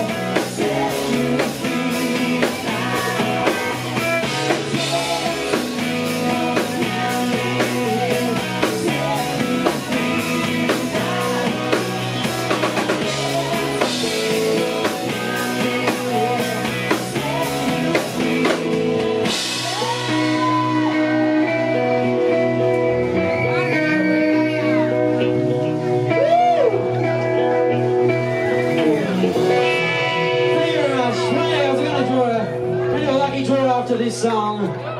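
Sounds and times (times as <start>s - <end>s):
person singing: 0.0s - 27.5s
drum kit: 0.0s - 31.9s
electric guitars: 0.0s - 34.9s
live rock band: 0.0s - 34.9s.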